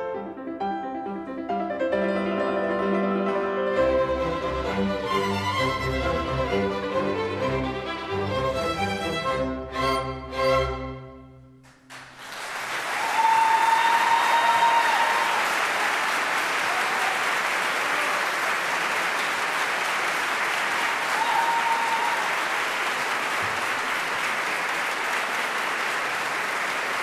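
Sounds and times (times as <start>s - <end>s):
audience applauding: 11.6s - 27.0s.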